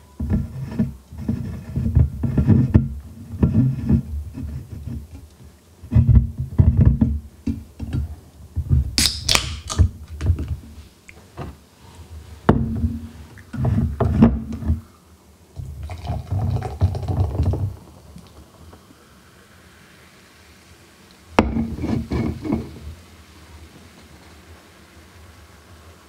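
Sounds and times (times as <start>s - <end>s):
can pull-tab cracking open: 9.0s - 9.9s
carbonation hissing: 10.6s - 26.0s
cola fizzing in glass: 15.6s - 20.0s.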